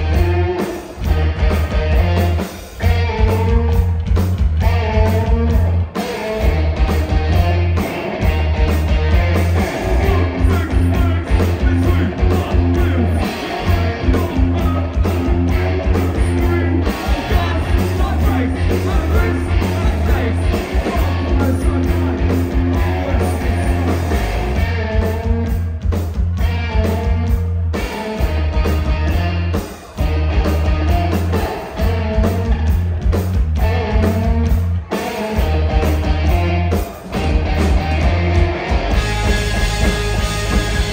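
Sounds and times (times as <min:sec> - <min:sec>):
bass: 0:00.0 - 0:40.9
drums: 0:00.0 - 0:40.9
electric guitars: 0:00.0 - 0:40.9
live rock band playing: 0:00.0 - 0:40.9
singer's vocal: 0:09.7 - 0:24.0.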